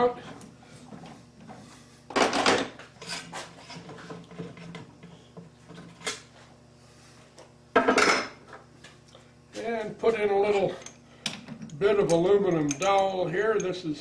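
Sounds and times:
light metal clinks: 0:11.6 - 0:13.8.

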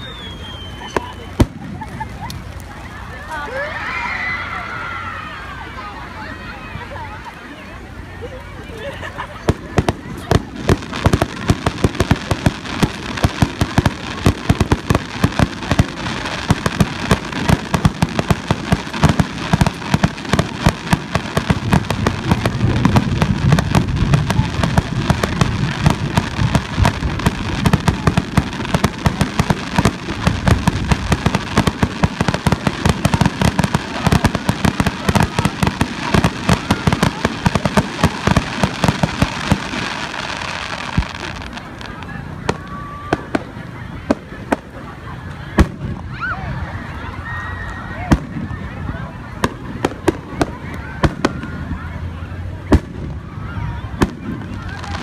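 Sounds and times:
fireworks booming: 0:00.0 - 0:02.4, 0:09.4 - 0:44.8, 0:45.5 - 0:46.1, 0:48.1 - 0:48.7, 0:49.4 - 0:51.7, 0:52.6 - 0:55.0
fireworks crackling: 0:00.0 - 0:06.1, 0:07.0 - 0:55.0.

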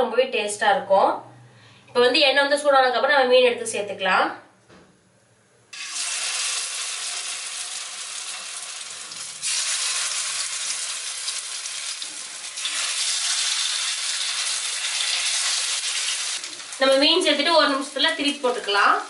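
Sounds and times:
fish sizzling in hot oil: 0:05.8 - 0:19.0.

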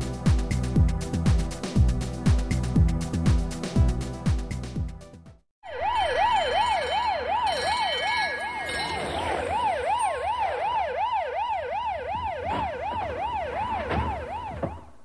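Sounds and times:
siren wailing up and down: 0:05.6 - 0:14.9.

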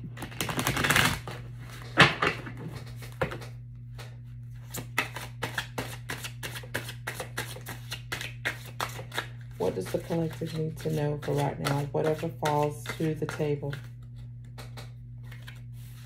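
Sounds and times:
cards fluttering: 0:00.2 - 0:01.4.

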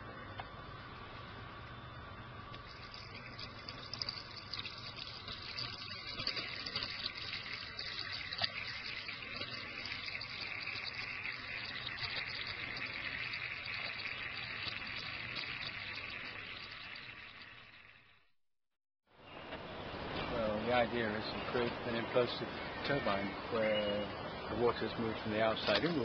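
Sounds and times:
water jets spraying hiss: 0:02.5 - 0:18.0, 0:24.4 - 0:26.0.

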